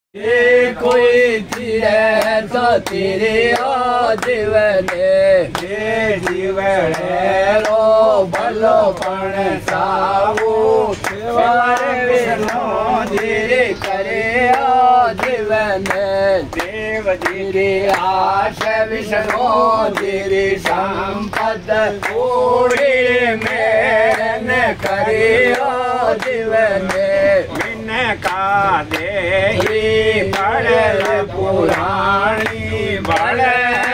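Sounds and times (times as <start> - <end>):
man singing folk verse: 0.2 - 33.9
hand claps: 0.8 - 33.9.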